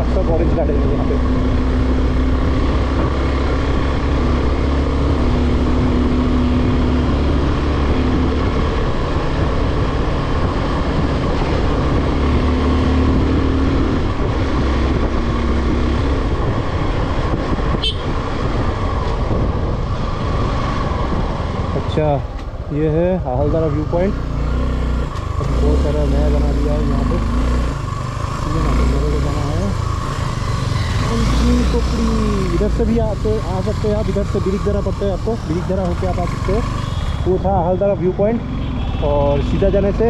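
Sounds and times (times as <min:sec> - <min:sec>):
wind and road noise: 0:00.0 - 0:40.0
motorcycle engine running: 0:23.4 - 0:40.0.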